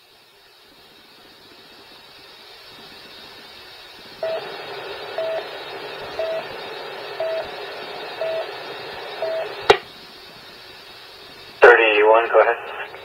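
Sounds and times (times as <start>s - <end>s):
radio static hiss: 0.0s - 13.0s
short mid-pitched beeps: 5.2s - 5.4s, 6.2s - 6.5s, 7.2s - 7.5s, 8.2s - 8.4s, 9.2s - 9.5s.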